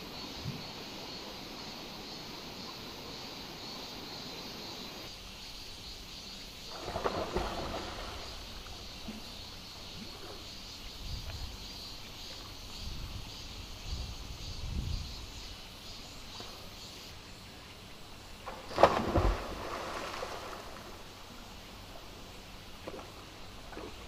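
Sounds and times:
wind buffeting microphone: 12.8 - 15.4
stream water rushing: 17.9 - 24.0.

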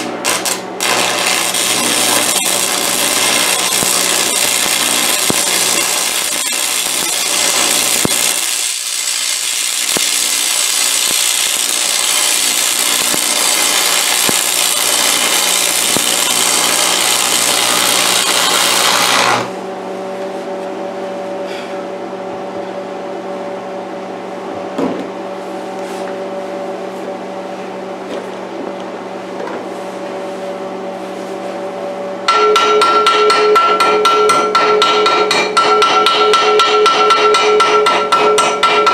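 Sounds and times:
chipping hammer tapping metal: 0.0 - 19.5, 32.3 - 38.9
welding arc crackling: 0.0 - 19.5.

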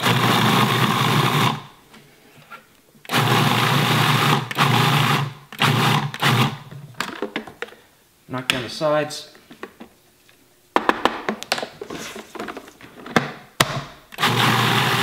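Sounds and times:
food processor pulsing: 0.0 - 1.7, 3.1 - 6.7, 14.2 - 15.0.

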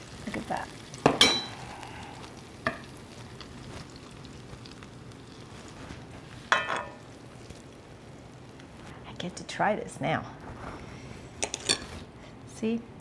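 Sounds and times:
faint steady hiss: 0.0 - 13.0
metal spoon clinking on skillet: 1.0 - 1.6.

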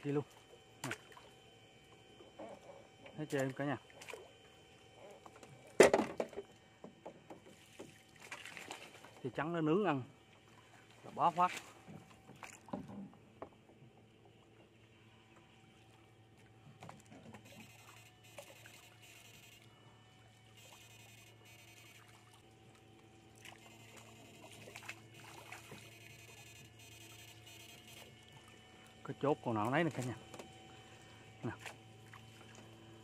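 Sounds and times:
faint steady hum: 0.0 - 33.0
water splashing and trickling: 7.4 - 9.2, 21.8 - 26.4, 29.8 - 32.8.

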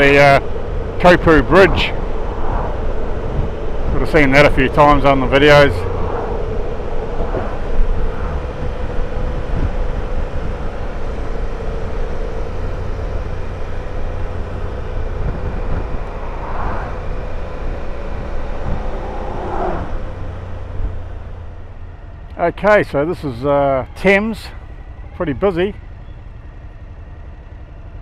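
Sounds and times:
wind rumble on microphone: 0.0 - 21.7.

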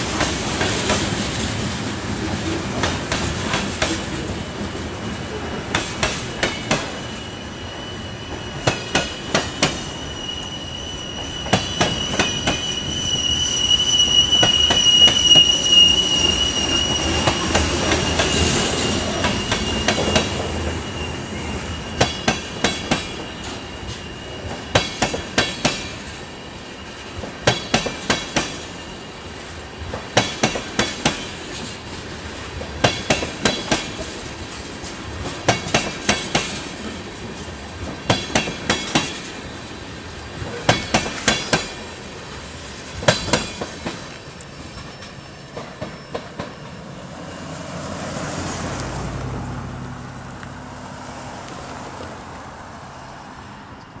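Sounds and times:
train wheels clacking over rail joint: 0.0 - 1.6, 2.7 - 4.3, 5.7 - 7.3, 8.3 - 10.1, 11.2 - 20.8, 21.9 - 26.2, 27.0 - 28.8, 29.9 - 31.9, 32.6 - 39.5, 40.4 - 41.9, 42.9 - 46.8.

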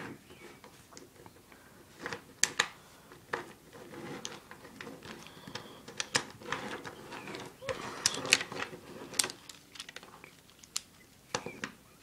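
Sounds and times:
soft handling noise: 0.0 - 11.8
wooden blocks clacking: 3.3 - 11.8.

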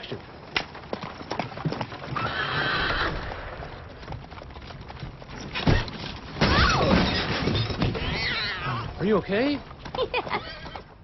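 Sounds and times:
hooves clip-clopping: 0.0 - 11.0
horse whinnying: 2.0 - 3.5, 5.6 - 9.1, 10.2 - 11.0.

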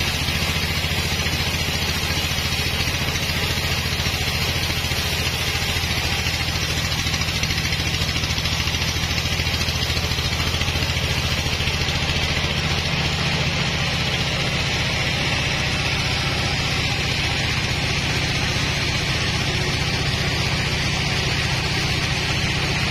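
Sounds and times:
diesel engine chugging: 0.0 - 22.9.

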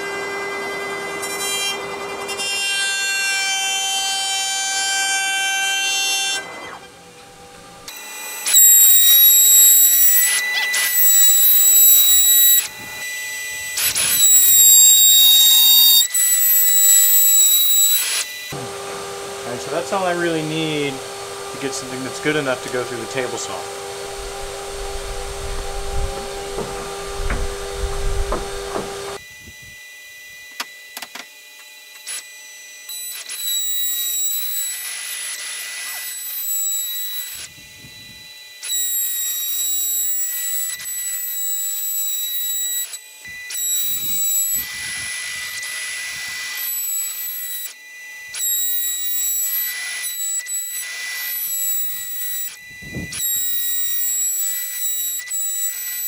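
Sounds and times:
power tool whining and cutting wood: 0.0 - 56.0
machine humming: 18.4 - 29.2.

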